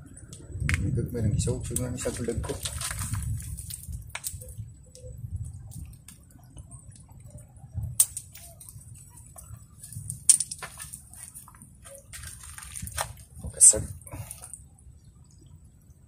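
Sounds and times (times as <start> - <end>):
fishing net clicks and rustles: 2.2 - 4.5, 8.0 - 13.4.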